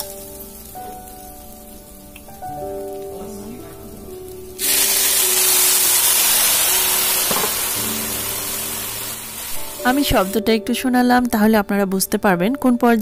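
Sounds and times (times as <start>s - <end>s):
milk sizzling in hot pan: 0.0s - 10.4s
rice crackling in oil: 0.0s - 10.4s.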